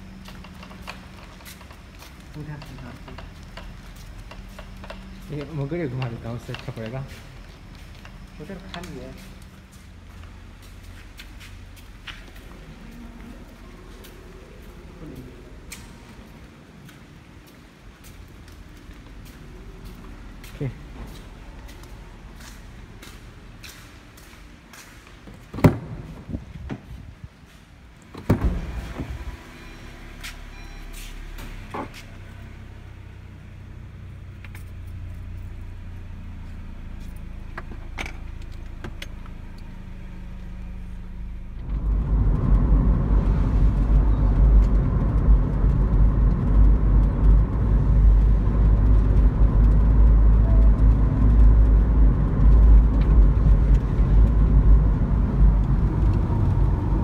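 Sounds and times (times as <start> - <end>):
engine and road noise in car cabin: 0.0 - 57.0
car door knocks and clicks: 25.5 - 26.8.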